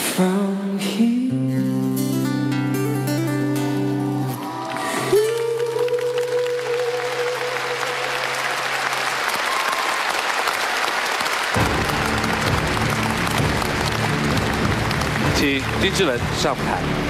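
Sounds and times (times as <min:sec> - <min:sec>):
acoustic guitar song: 0:00.0 - 0:08.5
audience applauding: 0:03.9 - 0:17.0.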